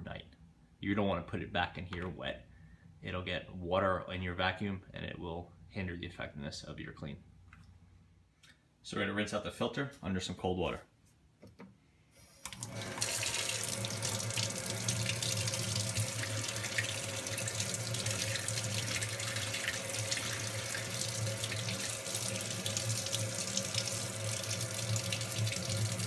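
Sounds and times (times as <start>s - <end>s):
faucet water pouring into sink: 12.5s - 26.0s.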